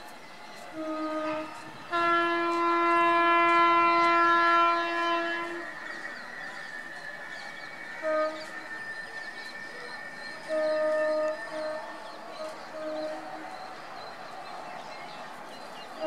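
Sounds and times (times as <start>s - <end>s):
train running noise: 0.0s - 16.0s
train horn blasts: 0.6s - 6.8s, 7.5s - 14.6s.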